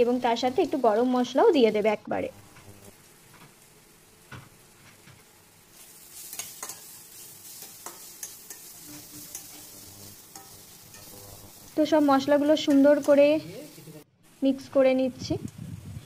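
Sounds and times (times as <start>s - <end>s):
food sizzling in a pan: 0.0s - 16.0s
spatula clicking and scraping metal: 6.1s - 11.2s.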